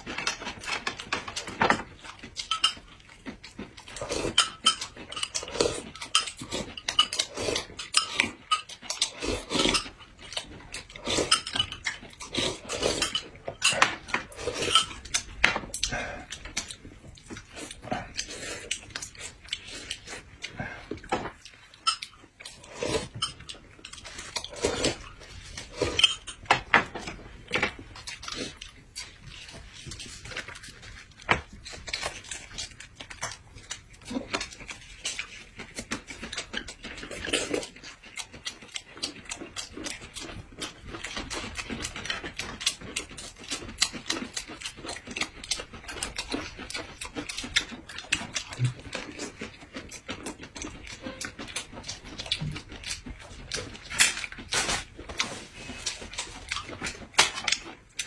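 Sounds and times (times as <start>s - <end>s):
people chewing and slurping: 0.0s - 58.0s.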